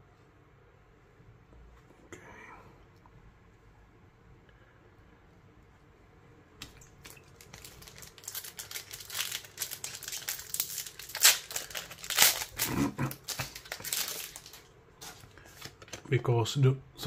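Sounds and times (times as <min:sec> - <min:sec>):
foil wrapper crinkling: 0:06.7 - 0:16.1
foil ripping: 0:07.0 - 0:15.8.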